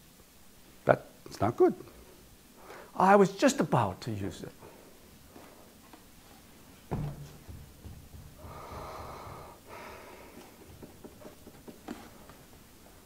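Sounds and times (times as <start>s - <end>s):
man breathing: 2.6s - 3.0s, 8.4s - 10.7s
bump: 6.9s - 9.6s.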